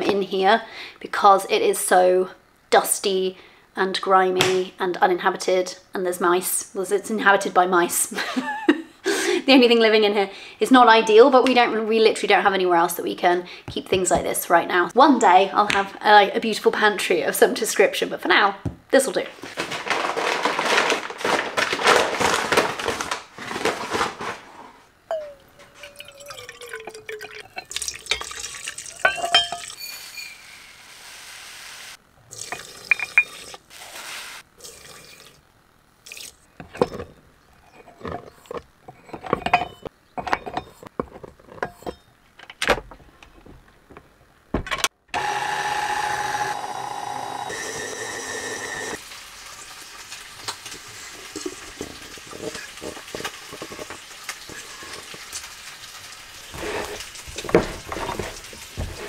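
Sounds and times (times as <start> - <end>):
paper sack rustling: 19.3 - 24.8
stand mixer motor running: 45.2 - 49.0.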